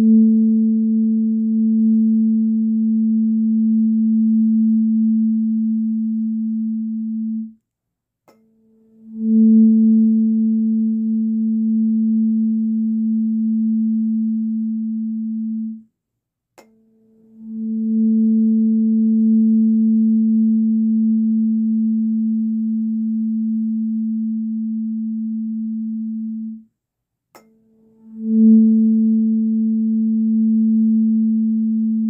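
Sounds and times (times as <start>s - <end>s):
tuning fork ringing: 0.0s - 7.6s, 8.3s - 15.8s, 16.6s - 26.7s, 27.4s - 32.0s
click: 7.6s - 8.5s, 16.6s - 16.8s, 27.3s - 27.6s.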